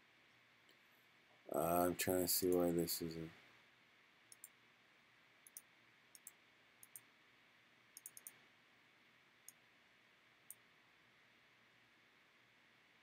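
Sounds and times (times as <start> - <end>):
low steady hiss: 0.0 - 13.0
computer mouse clicks: 4.3 - 4.6, 5.4 - 7.1, 8.0 - 8.4.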